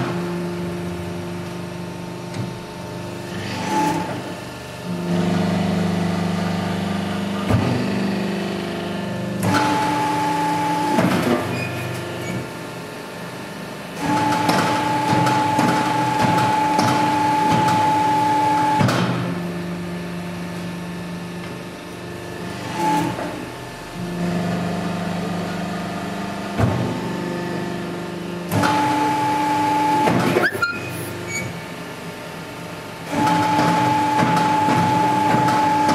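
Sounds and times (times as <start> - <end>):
hydraulic press whining: 13.9 - 19.4, 22.4 - 32.1, 32.9 - 35.9.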